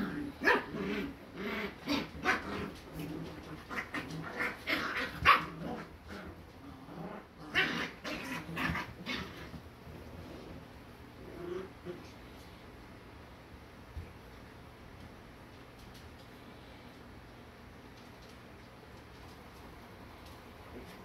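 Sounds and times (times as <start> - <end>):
puppies barking: 0.0 - 6.0.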